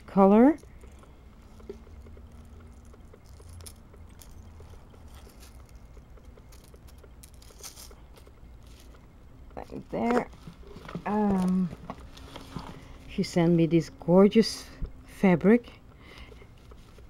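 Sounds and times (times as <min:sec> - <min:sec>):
low steady hum: 0:00.0 - 0:17.0
small metal clicks and clinks: 0:00.4 - 0:09.0
packaging rustling: 0:00.9 - 0:09.0.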